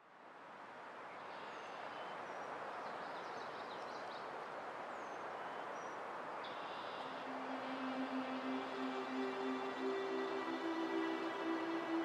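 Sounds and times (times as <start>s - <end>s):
steady rushing noise: 7.1s - 12.0s.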